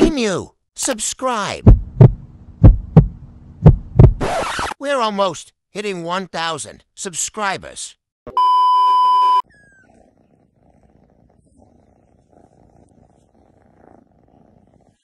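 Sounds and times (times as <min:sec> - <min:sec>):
cat purring: 0:09.4 - 0:15.0.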